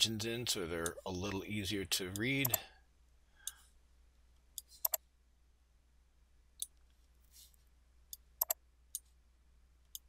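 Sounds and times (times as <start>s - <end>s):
faint steady hum: 0.0s - 10.0s
computer mouse clicking: 4.6s - 5.0s, 8.1s - 9.1s
soft rustle: 6.9s - 7.7s.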